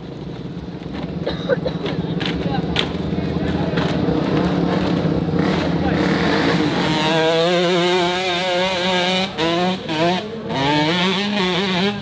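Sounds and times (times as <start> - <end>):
dirt bike engine revving: 2.1 - 12.0.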